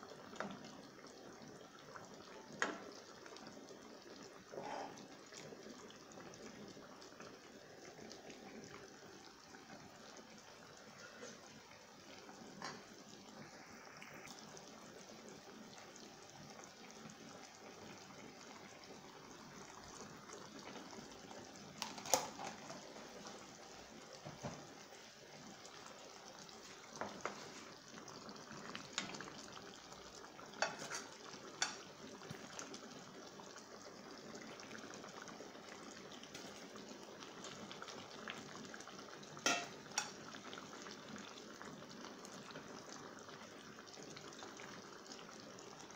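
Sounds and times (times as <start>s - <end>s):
sauce simmering in a frying pan: 0.0s - 45.9s
spoon clinking against pan: 39.4s - 40.2s.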